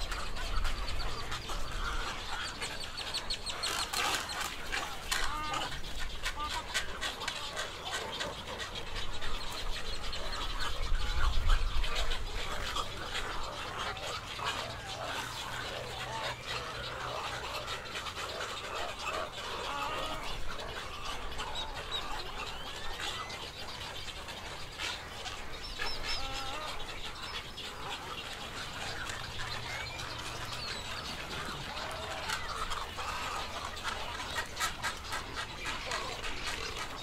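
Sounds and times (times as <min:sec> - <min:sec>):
waterbirds croaking and squawking: 0:00.0 - 0:37.0.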